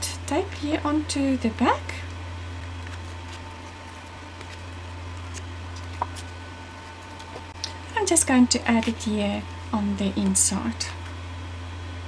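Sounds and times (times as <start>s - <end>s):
steady low hum: 0.0s - 12.0s
cardstock handling: 2.6s - 7.7s, 8.7s - 9.1s.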